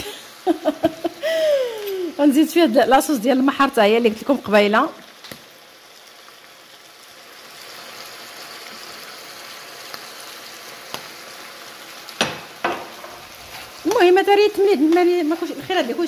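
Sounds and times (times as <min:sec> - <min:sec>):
seafood sizzling in a frying pan: 0:00.0 - 0:16.0
metal spoon knocking on pan: 0:12.2 - 0:13.2.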